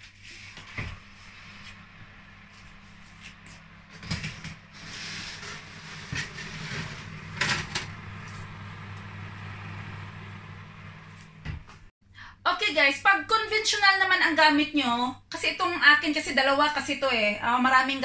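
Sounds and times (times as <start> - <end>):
oven fan humming: 0.2 - 11.9
oven door shutting: 3.9 - 11.8.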